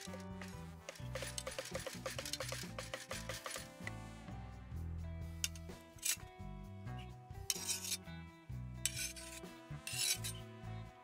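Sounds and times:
cleaver scraping wooden board: 0:00.0 - 0:03.8, 0:07.5 - 0:08.0, 0:08.9 - 0:10.4
background music: 0:00.0 - 0:11.0.

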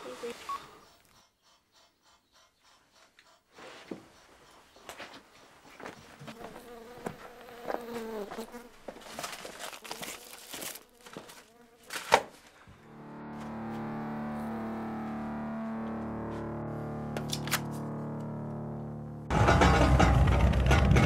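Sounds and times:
fly buzzing: 0:06.2 - 0:12.2, 0:12.8 - 0:19.3
music: 0:12.8 - 0:21.0.

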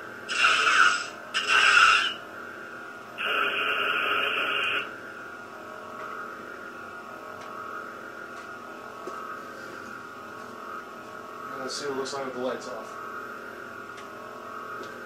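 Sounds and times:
lightsaber idle hum: 0:00.2 - 0:15.0
noisy lightsaber effect burst: 0:00.3 - 0:02.2.

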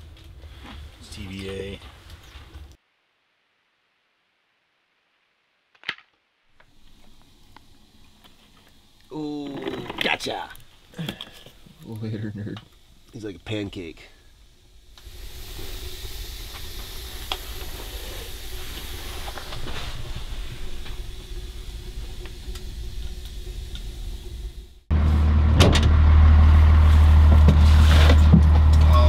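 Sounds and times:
steady hiss: 0:06.5 - 0:25.0
motor vehicle rumble: 0:14.0 - 0:29.0.

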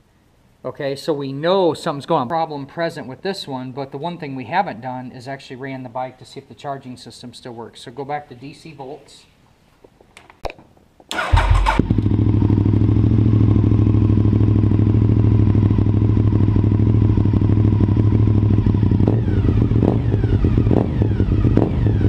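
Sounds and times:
motorcycle engine starting and idling: 0:11.1 - 0:22.0.

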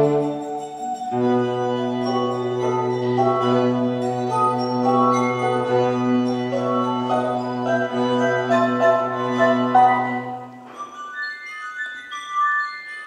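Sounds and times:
glass harp melody: 0:00.0 - 0:13.0.

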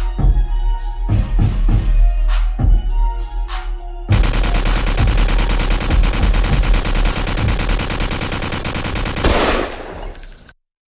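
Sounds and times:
rapid machine-gun fire: 0:04.1 - 0:10.0.

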